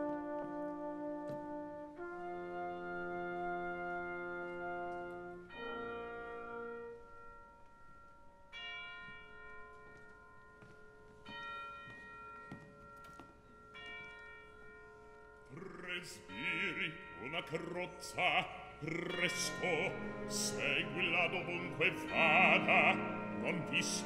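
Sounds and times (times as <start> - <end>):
orchestra sustained chords: 15.6 - 24.0
deep church bell tolling: 15.9 - 24.0.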